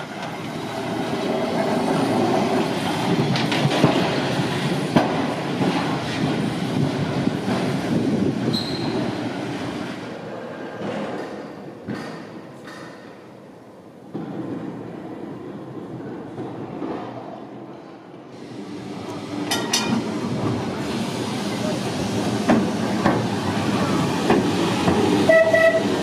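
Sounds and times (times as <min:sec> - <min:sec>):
tram wheels rumbling on track: 0:00.0 - 0:26.0
brief high squeal: 0:08.5 - 0:09.1.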